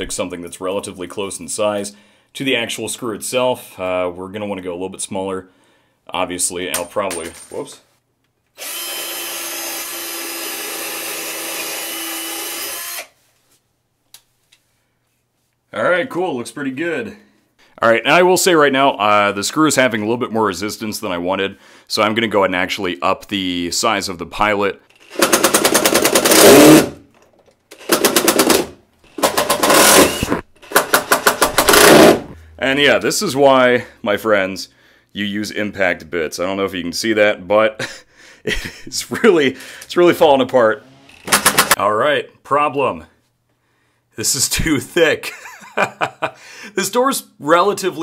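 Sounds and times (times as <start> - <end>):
impact driver hammering screw: 8.6 - 13.1, 25.0 - 27.0, 27.7 - 32.3, 41.2 - 41.8
power drill boring into wood: 8.6 - 13.2, 24.9 - 27.0, 27.7 - 32.3, 41.1 - 41.8.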